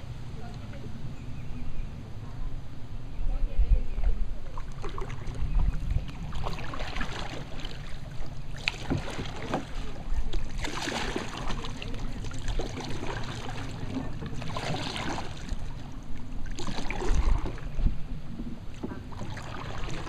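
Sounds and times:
low wind rumble on microphone: 0.0s - 20.0s
paddle splashing in water: 4.4s - 20.0s.

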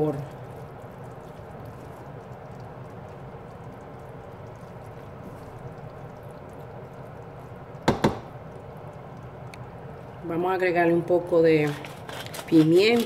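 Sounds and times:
spatula stirring food: 0.0s - 10.0s, 11.5s - 13.0s
food simmering in a pan: 0.0s - 12.3s
spatula knocking on pan: 7.8s - 8.4s.

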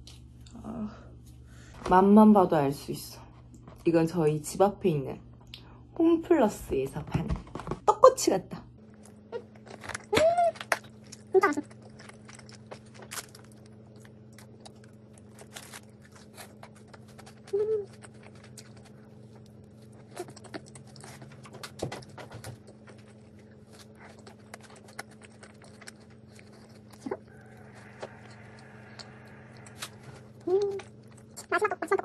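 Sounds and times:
steady low hum: 0.0s - 32.0s
chewing: 8.9s - 32.0s.

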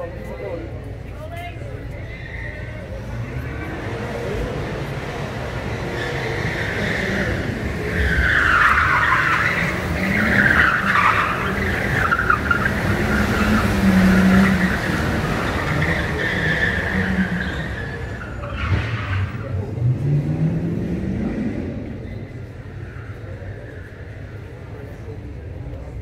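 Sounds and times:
vehicles driving past: 0.0s - 26.0s
car engine revving: 3.0s - 24.6s
tyres squealing: 5.8s - 19.5s.

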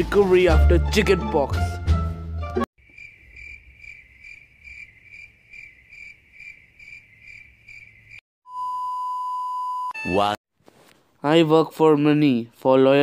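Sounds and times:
cricket chirping: 2.8s - 8.2s.

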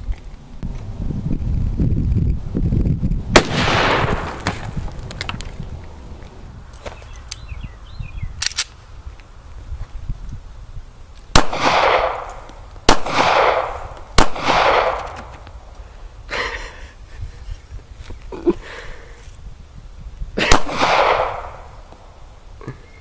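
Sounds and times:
pistol shots with echo: 3.4s - 4.4s, 11.4s - 15.2s, 20.4s - 21.7s.

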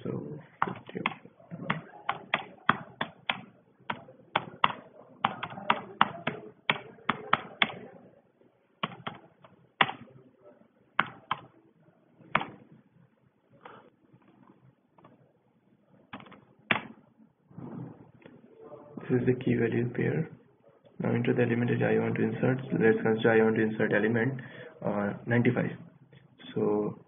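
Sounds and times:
computer keyboard keystrokes: 0.6s - 7.8s, 8.8s - 9.2s, 11.0s - 11.5s, 16.1s - 17.0s.

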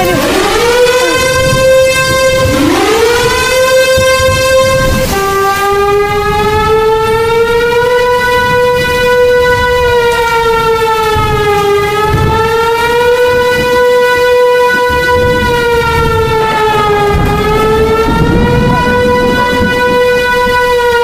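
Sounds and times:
low rumbling noise: 0.0s - 21.0s
warning siren steady tone: 0.0s - 21.0s.

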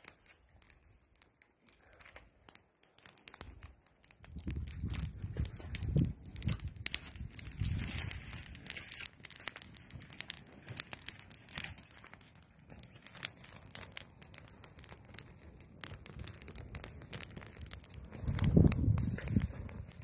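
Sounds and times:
campfire crackling and popping: 0.0s - 20.0s.

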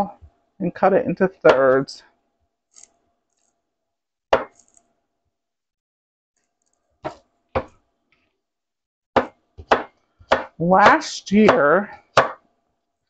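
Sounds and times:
knife chopping on cutting board: 4.4s - 4.6s, 9.2s - 12.4s.

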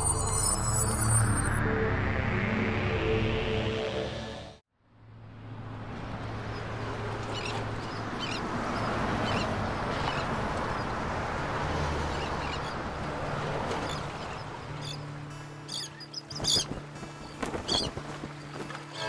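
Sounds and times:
river water rushing: 5.6s - 19.0s
bird calls: 6.6s - 10.9s, 15.6s - 19.0s.

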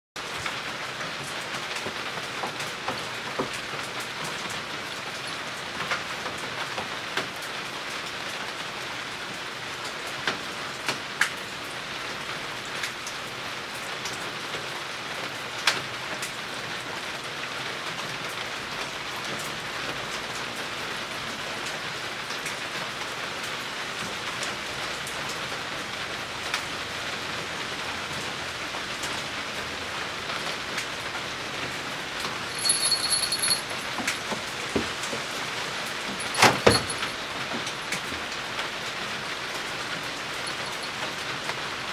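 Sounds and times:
hooves knocking on wooden floor: 32.5s - 35.3s.

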